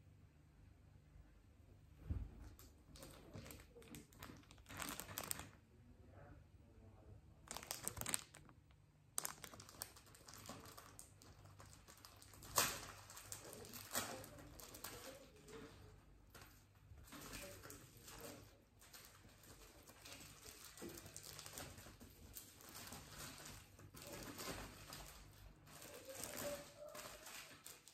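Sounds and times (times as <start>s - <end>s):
plastic and foil packaging crinkling: 2.6s - 5.6s, 7.4s - 27.9s.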